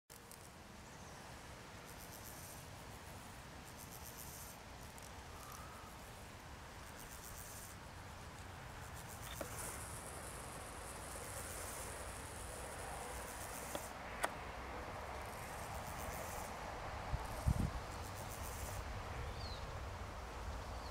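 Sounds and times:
bush crickets buzzing chirps: 0.1 - 20.9
small clicks: 9.1 - 9.9.

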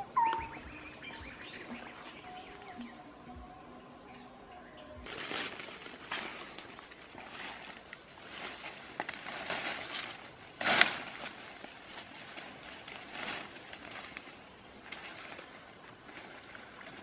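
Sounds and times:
leaves and undergrowth rustling: 4.3 - 17.0
crash of foliage: 5.0 - 17.0.

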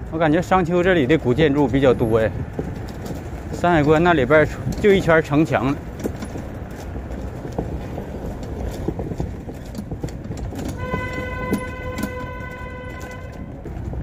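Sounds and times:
bicycle trailer rattling on paving: 0.0 - 14.0
steady horn-like tone: 10.8 - 13.6.

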